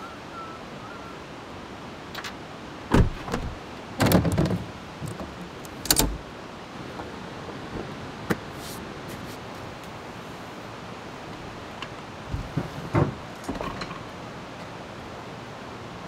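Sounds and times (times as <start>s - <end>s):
door knocks and clunks: 2.9s - 6.2s, 12.3s - 14.0s.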